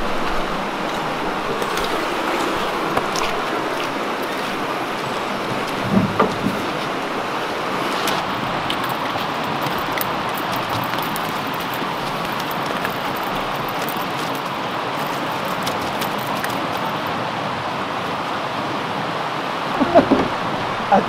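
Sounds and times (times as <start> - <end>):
river rushing over rapids: 0.0 - 21.0.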